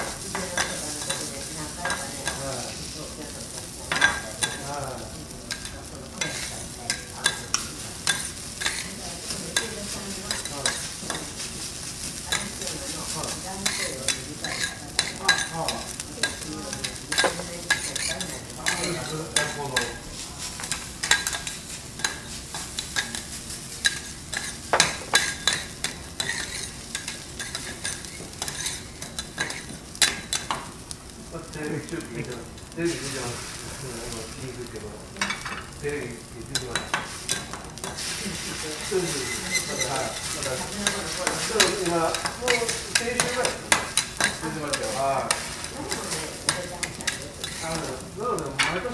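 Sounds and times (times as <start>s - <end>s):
rice sizzling on a griddle: 0.0s - 48.9s
metal spatulas clicking and scraping: 5.5s - 8.9s, 13.6s - 20.0s, 20.6s - 30.6s, 39.2s - 47.7s.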